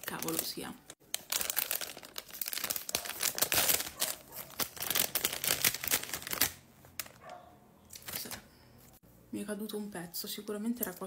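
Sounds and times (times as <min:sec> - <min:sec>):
plastic packet tearing and crinkling: 0:00.0 - 0:07.2.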